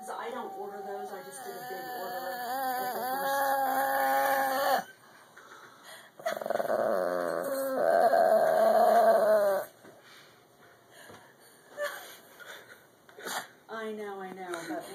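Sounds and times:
dog whining: 0.1s - 5.0s, 6.2s - 9.8s.

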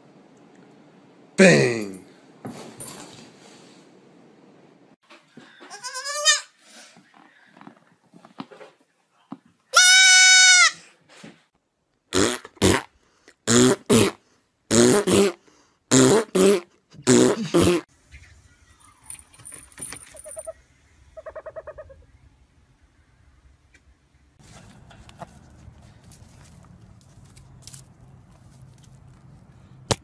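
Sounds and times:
baby goat bleating: 5.7s - 6.5s, 9.8s - 10.8s.

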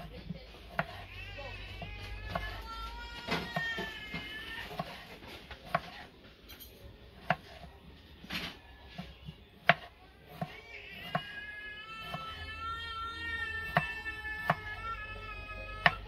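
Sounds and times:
knife chopping on wooden board: 0.7s - 1.0s, 3.4s - 6.1s, 7.2s - 7.7s, 8.9s - 11.3s, 15.8s - 16.0s.

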